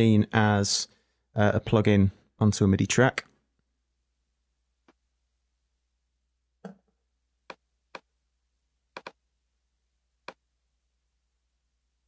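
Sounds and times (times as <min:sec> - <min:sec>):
computer mouse clicks: 0:09.0 - 0:09.2.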